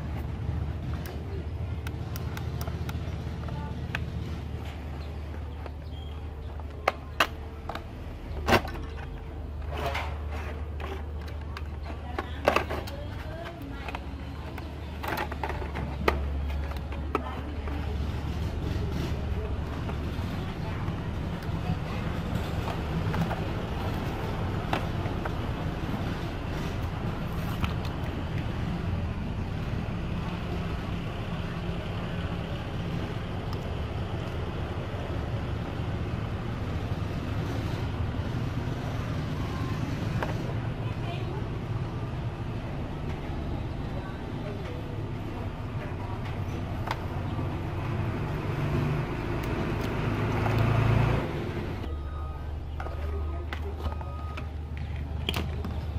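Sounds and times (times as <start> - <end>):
low background rumble with hum: 0.0 - 55.9
plastic rubbing and rattling: 6.6 - 28.3.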